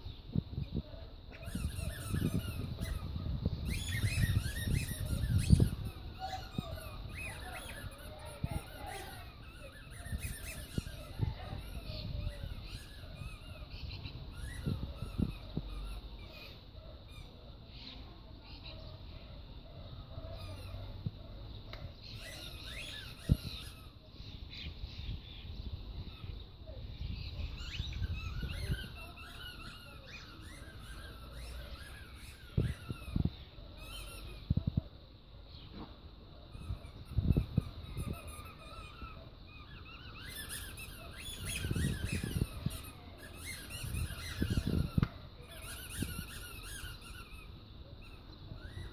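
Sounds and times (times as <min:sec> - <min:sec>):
small birds chirping: 0:00.0 - 0:48.9
squeaky dog toy squeaking: 0:01.4 - 0:13.6, 0:40.0 - 0:47.5.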